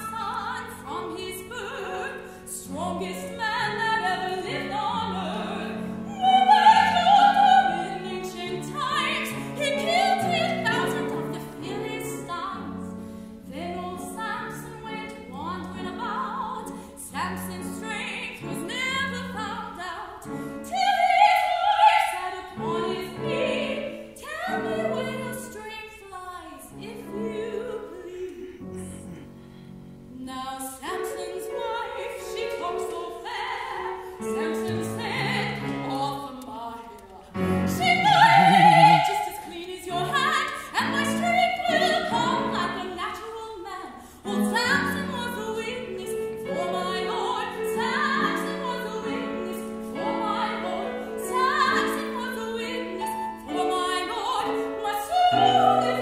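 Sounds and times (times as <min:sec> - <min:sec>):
woman singing operatically: 0:00.0 - 0:12.6, 0:30.2 - 0:56.0
piano accompaniment: 0:00.0 - 0:25.8, 0:37.3 - 0:43.3.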